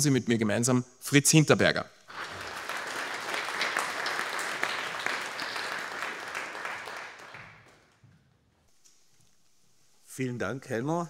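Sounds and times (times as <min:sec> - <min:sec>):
audience applauding: 0:02.1 - 0:08.0.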